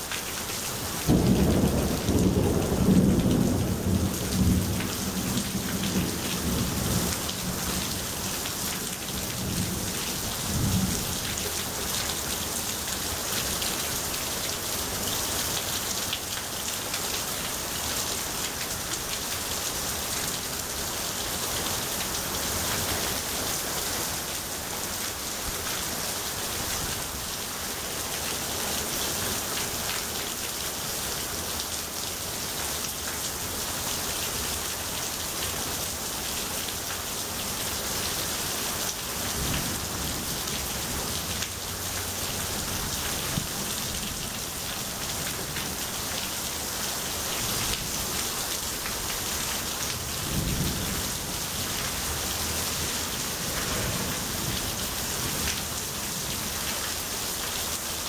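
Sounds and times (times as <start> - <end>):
heavy rain splashing: 0.0 - 58.0.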